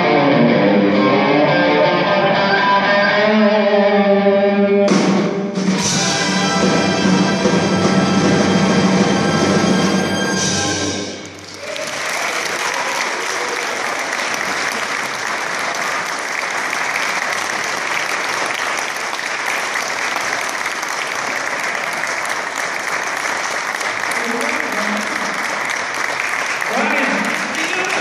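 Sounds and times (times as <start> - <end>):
audience applause: 11.2 - 28.0.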